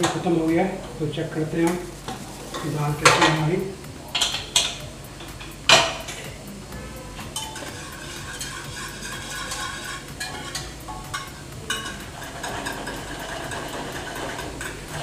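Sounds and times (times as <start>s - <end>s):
whisk stirring wet food: 0.0s - 15.0s
whisk clinking against pot: 7.1s - 15.0s.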